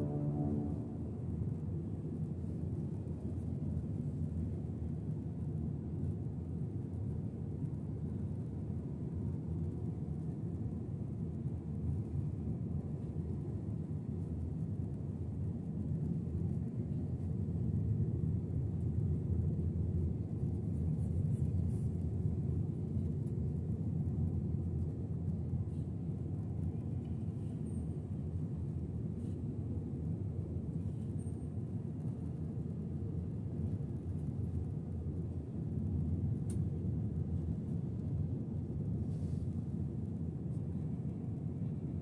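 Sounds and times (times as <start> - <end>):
airplane cabin engine rumble: 0.0 - 42.0.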